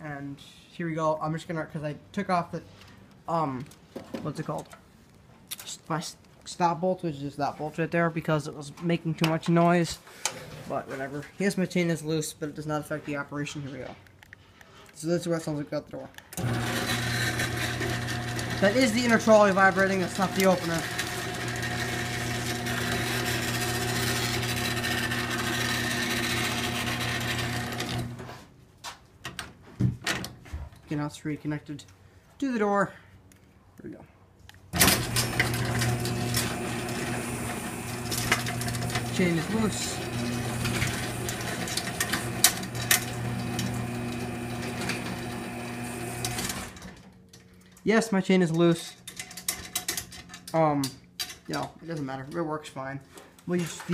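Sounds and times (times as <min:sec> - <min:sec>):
garage door opener motor hum: 0:16.4 - 0:28.2, 0:34.7 - 0:47.1.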